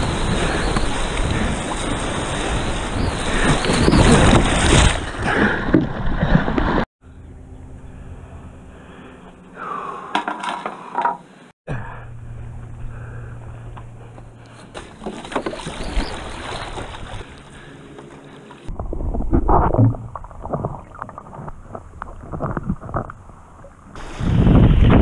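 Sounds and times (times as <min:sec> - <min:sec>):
water sloshing and splashing: 0:00.0 - 0:06.9, 0:14.0 - 0:25.0.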